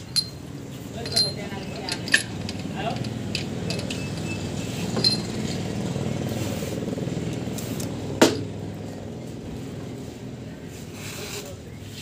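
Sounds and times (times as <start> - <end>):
light metallic clink: 0.0 - 5.6.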